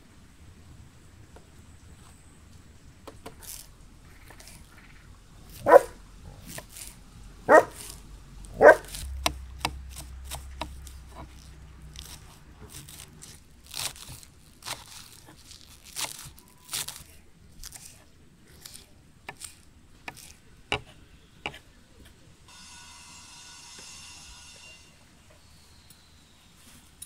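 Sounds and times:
dog barking loudly: 5.5 - 6.0, 7.4 - 9.0
knife chopping on wooden board: 5.5 - 6.9, 8.6 - 17.1, 18.6 - 21.6.

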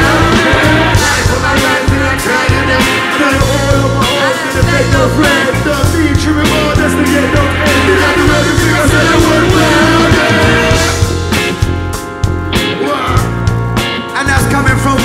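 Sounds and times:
drum beat: 0.0 - 12.7
heavy bass: 0.0 - 15.0
live band playing hip-hop: 0.0 - 15.0.

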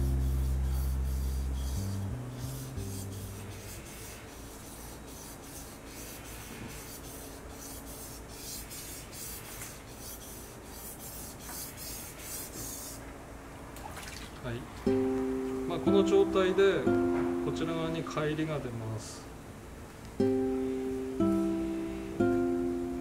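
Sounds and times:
background music: 14.9 - 18.0.

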